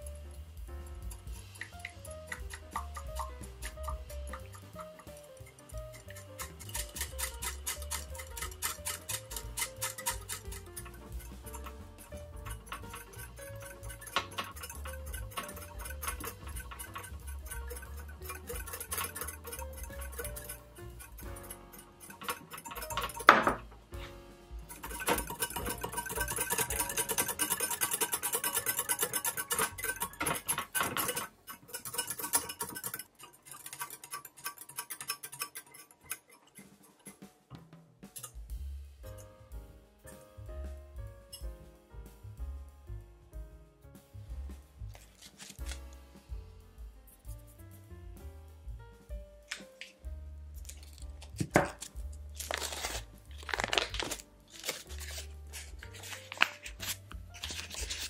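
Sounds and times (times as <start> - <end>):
soft background music: 0.0 - 58.0
whisk clicking against glass bowl: 1.0 - 23.6, 24.7 - 37.3
foil wrapper crinkling: 44.9 - 46.0, 50.6 - 58.0.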